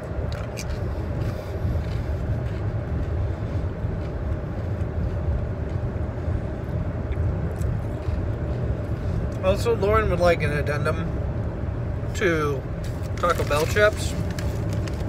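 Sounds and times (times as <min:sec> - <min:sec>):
car cabin road rumble: 0:00.0 - 0:15.0
potato chip crunching: 0:12.9 - 0:15.0.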